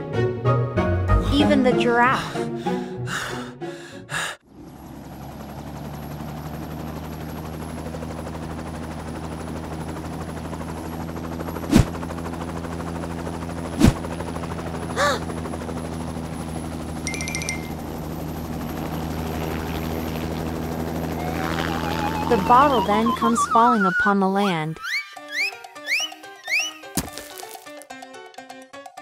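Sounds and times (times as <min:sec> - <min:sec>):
cartoon helicopter rotor drone: 0:04.4 - 0:26.9.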